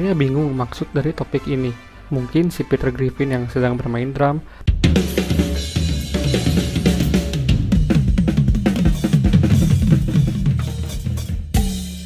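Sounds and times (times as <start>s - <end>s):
drum kit playing: 4.7s - 12.0s.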